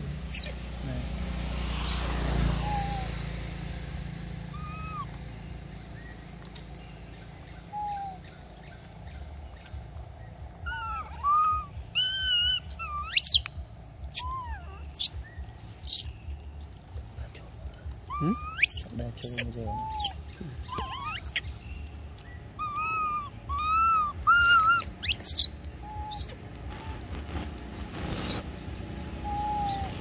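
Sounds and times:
whistled and chirping animal calls: 1.8s - 3.2s, 4.4s - 5.2s, 7.5s - 9.2s, 10.6s - 16.3s, 18.0s - 21.6s, 22.3s - 27.0s, 28.1s - 28.5s, 29.1s - 30.0s.

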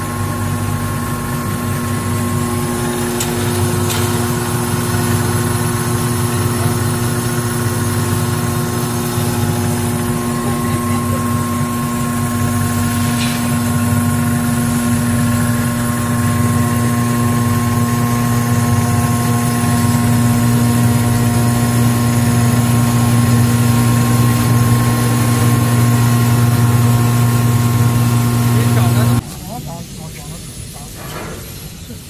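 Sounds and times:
grinder motor hum and whine: 0.0s - 29.2s.

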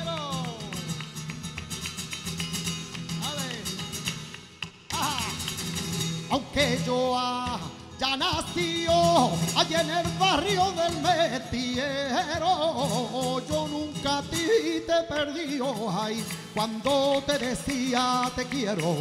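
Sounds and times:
flamenco guitar: 0.0s - 19.0s
man singing flamenco: 0.0s - 19.0s.

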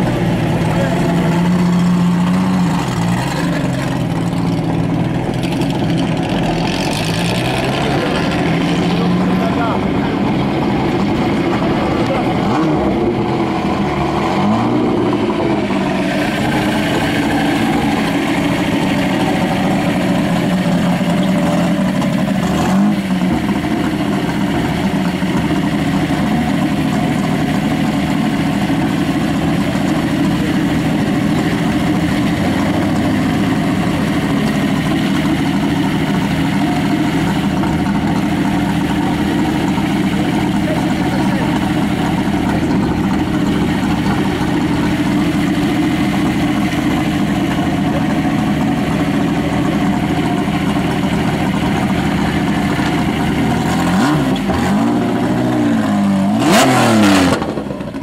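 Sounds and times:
voices: 0.0s - 4.5s, 7.7s - 13.8s, 15.0s - 22.4s, 29.5s - 53.4s
car engine idling: 0.0s - 58.0s.

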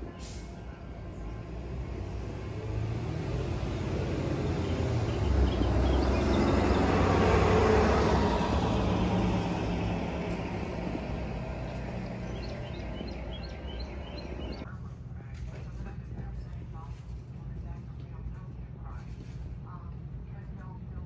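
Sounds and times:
vehicle engine hum: 0.0s - 14.7s.

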